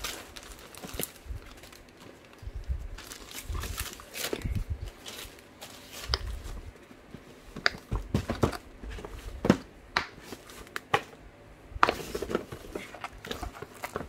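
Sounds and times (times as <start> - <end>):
hard case knocking and scraping in box: 7.9 - 9.6.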